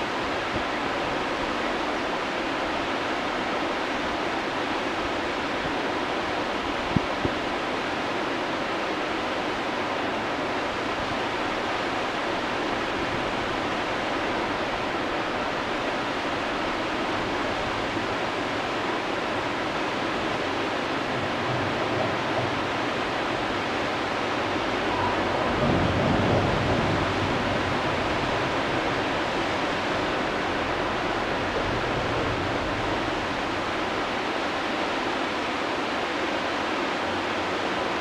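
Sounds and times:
whitewater rushing: 0.0 - 38.0.

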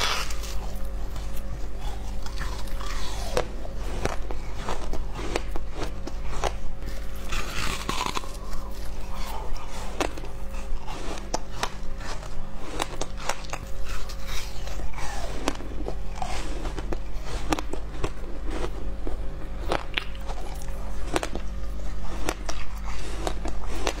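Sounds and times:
ice being bitten and chewed: 0.0 - 24.0.

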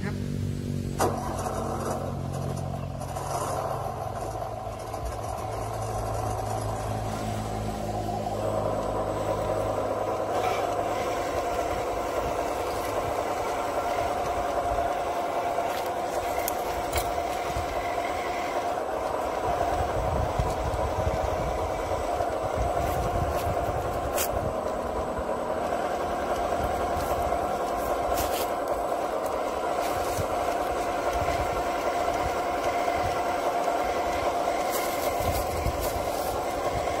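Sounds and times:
toy tractor motor whirring: 1.0 - 37.0
tracks clattering over dirt: 7.9 - 37.0.

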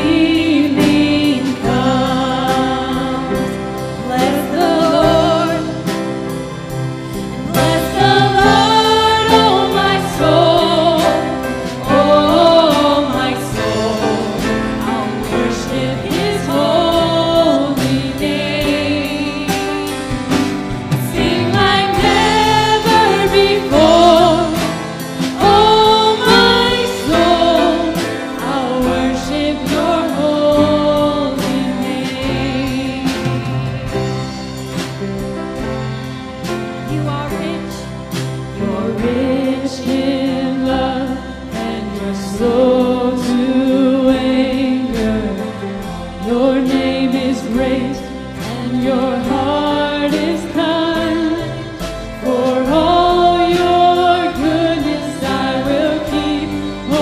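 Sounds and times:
instrumental accompaniment with beat: 0.0 - 57.0
worship team singing: 0.0 - 57.0.

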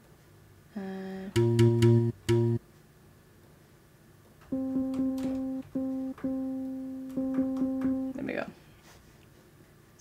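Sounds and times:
jazz piano repeated notes: 1.3 - 2.6, 4.5 - 8.4.

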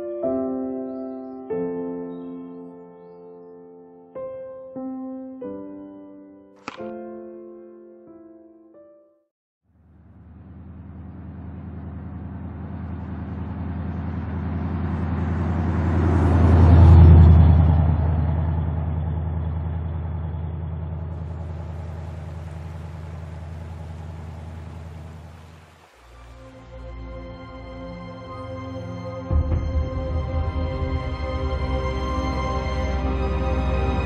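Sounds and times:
car driving past: 9.8 - 34.0.

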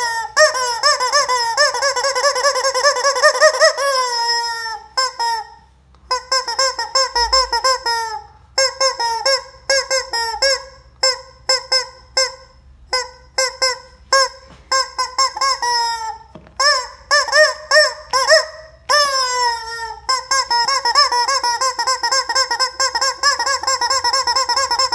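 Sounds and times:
rubber squeaky toy squawking: 0.0 - 24.9.

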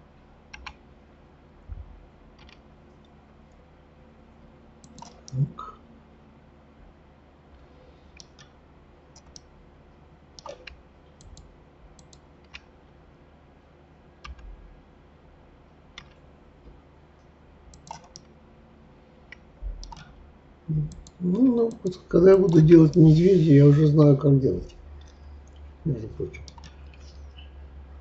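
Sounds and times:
faint room hum: 0.0 - 28.0
mouse and keyboard clicks: 0.5 - 0.8, 2.4 - 2.6, 4.8 - 5.4, 10.4 - 12.7, 16.0 - 16.2, 17.7 - 18.3, 19.3 - 20.2, 26.4 - 27.3.

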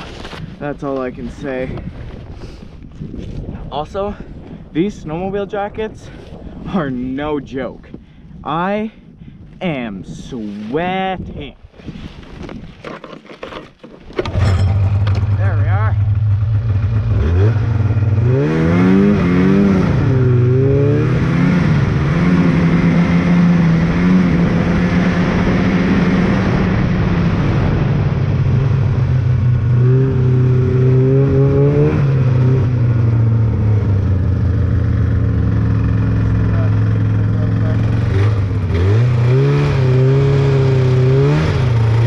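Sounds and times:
snowmobile engine revving: 14.2 - 42.0.

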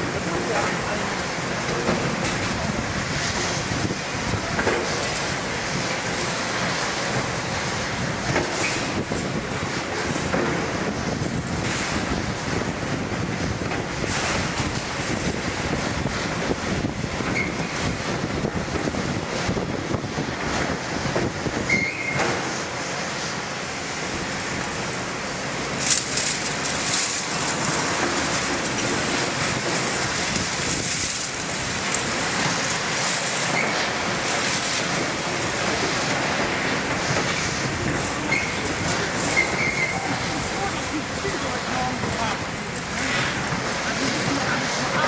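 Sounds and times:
high metal squeals: 21.7 - 22.2, 39.3 - 40.2.

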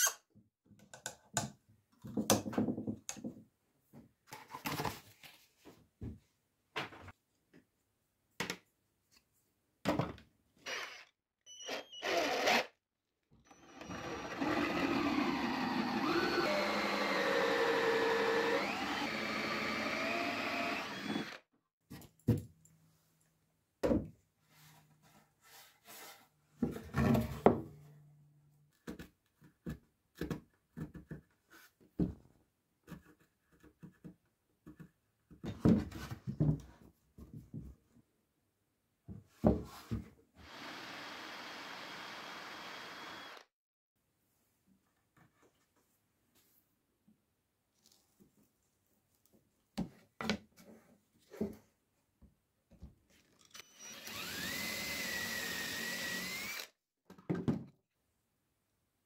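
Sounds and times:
handheld power tool running: 11.7 - 12.7, 13.5 - 21.4, 40.4 - 43.5, 53.5 - 56.7.

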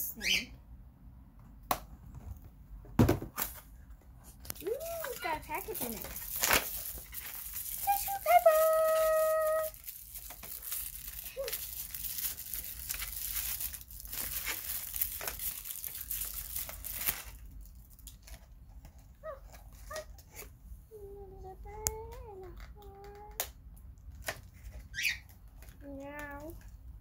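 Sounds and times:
tissue paper crinkling and tearing: 4.5 - 18.4.

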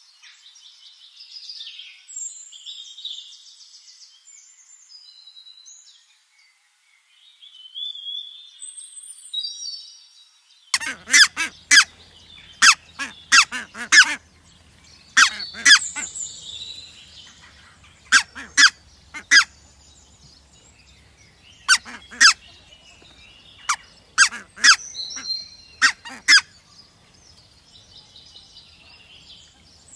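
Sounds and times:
geese shrill calls: 10.8 - 14.2, 15.1 - 16.2, 17.3 - 19.5, 21.6 - 22.5, 23.7 - 26.5.

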